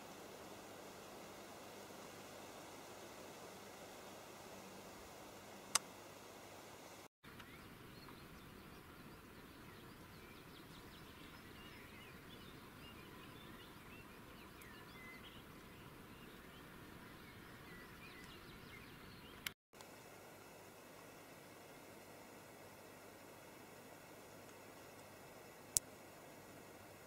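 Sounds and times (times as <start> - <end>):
songbirds chirping: 0.0 - 19.6
steady background hiss: 0.0 - 27.0.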